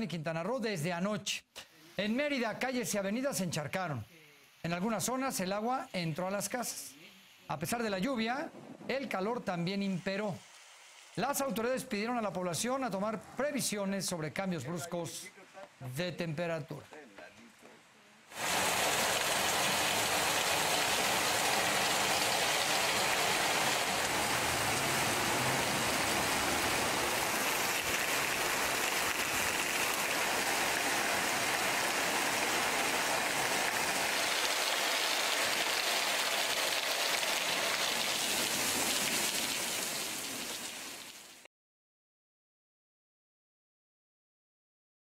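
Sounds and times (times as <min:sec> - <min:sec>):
rain on wet pavement: 0:18.3 - 0:41.5.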